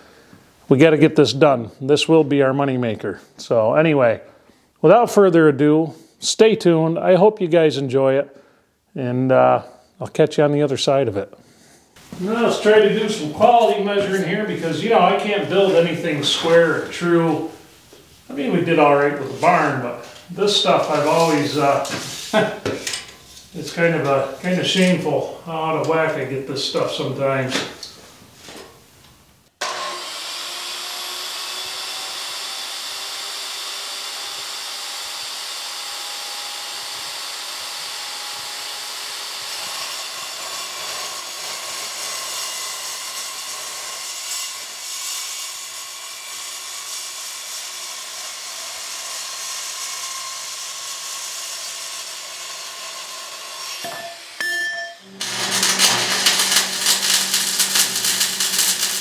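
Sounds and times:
circular saw cutting steel: 18.4 - 26.0, 29.6 - 59.0
stick welding crackle: 55.1 - 59.0.

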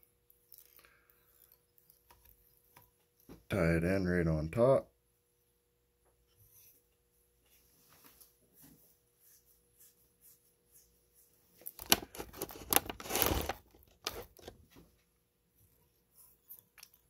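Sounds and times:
hands rustling and scraping materials: 7.5 - 14.8.

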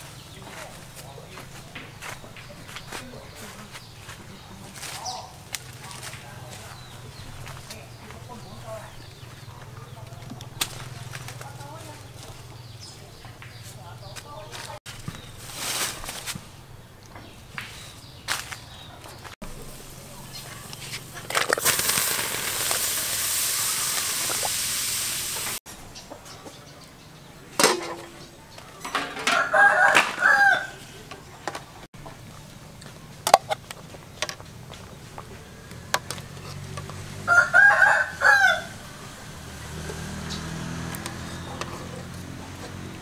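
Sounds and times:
rooster crowing: 29.1 - 31.0, 37.1 - 39.2.

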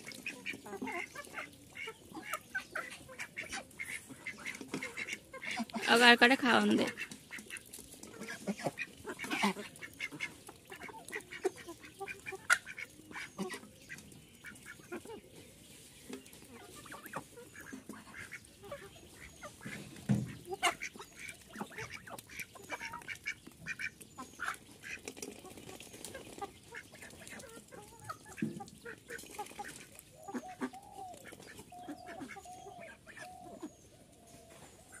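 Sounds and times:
ducks quacking: 0.0 - 15.3, 16.4 - 33.8.

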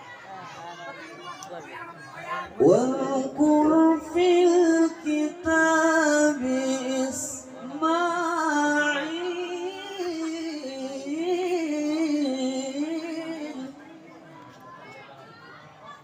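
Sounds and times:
man reciting melodically: 2.5 - 14.1.

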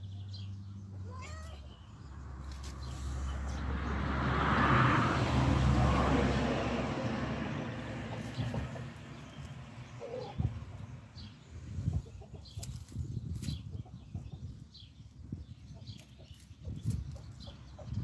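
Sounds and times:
vehicle noise: 0.0 - 13.5.

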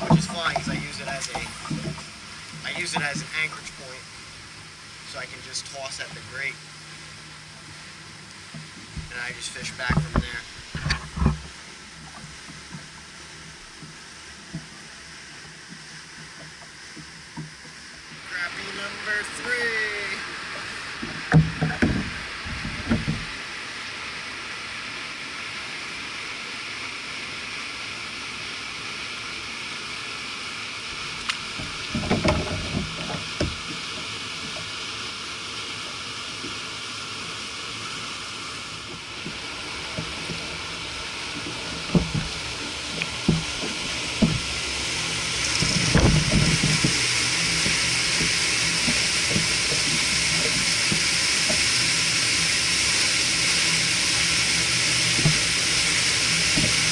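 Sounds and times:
knocks and thumps from handling: 21.0 - 23.3, 31.6 - 33.8, 45.5 - 51.6
wind on microphone: 39.2 - 51.6.

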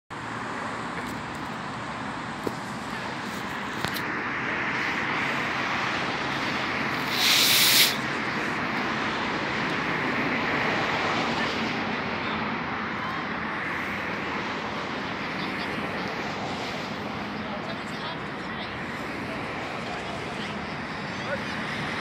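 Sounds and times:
distant jet rumble: 2.1 - 12.5
short loud hiss: 7.0 - 8.0.

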